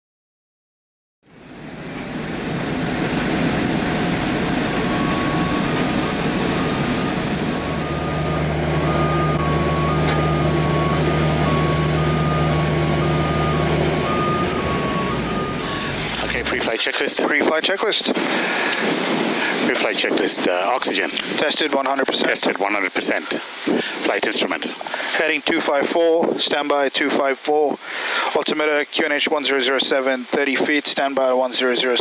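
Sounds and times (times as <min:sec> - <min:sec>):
high hiss: 0:01.3 - 0:16.7
low engine hum: 0:01.3 - 0:16.7
two-note warning beep: 0:03.9 - 0:16.6.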